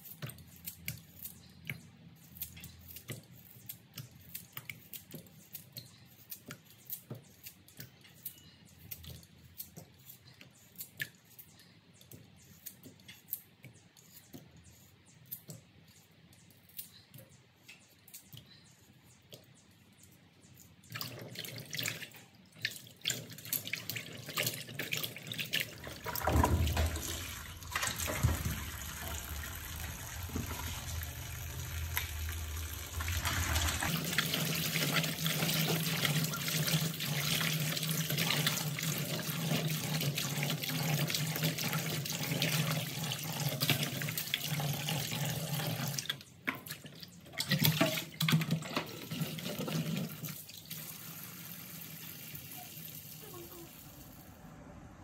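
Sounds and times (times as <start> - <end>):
tap water rushing into basin: 23.3 - 52.5.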